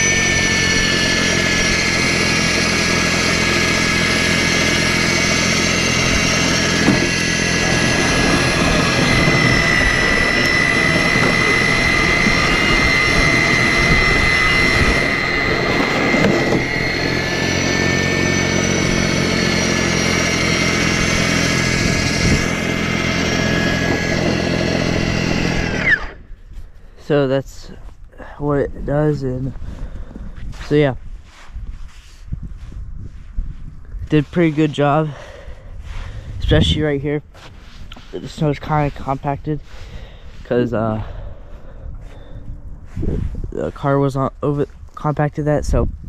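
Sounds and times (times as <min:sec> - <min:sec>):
electric motor whining: 0:00.0 - 0:26.9
auger churning snow: 0:00.0 - 0:27.7, 0:34.0 - 0:45.8.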